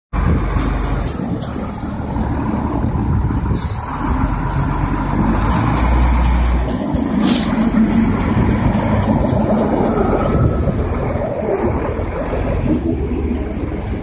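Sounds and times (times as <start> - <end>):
diesel engine under load: 0.1 - 14.0
short hiss: 7.2 - 7.6.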